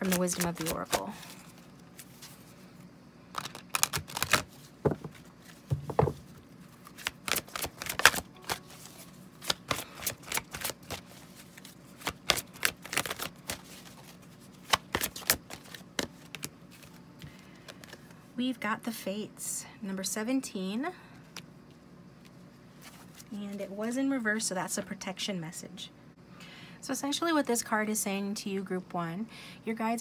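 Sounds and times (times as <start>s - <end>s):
cards being shuffled: 0.0s - 2.5s, 3.3s - 18.2s.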